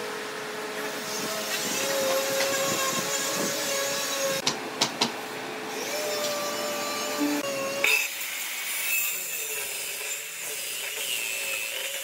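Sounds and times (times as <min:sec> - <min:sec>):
machinery hum with whine: 0:00.0 - 0:08.6.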